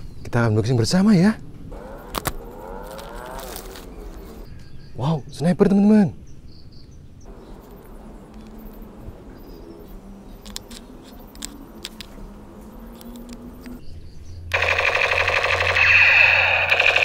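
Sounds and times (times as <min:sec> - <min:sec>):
toy electronic sound effect: 0:14.6 - 0:17.0.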